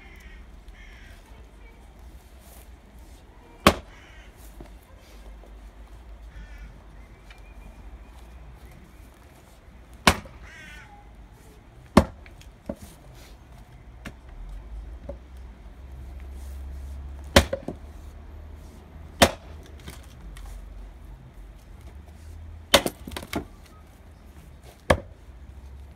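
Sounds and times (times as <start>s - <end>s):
axe chopping firewood: 3.6s - 4.0s, 9.9s - 10.5s, 11.8s - 12.9s, 17.2s - 17.9s, 19.1s - 20.2s, 22.7s - 23.5s, 24.7s - 25.2s.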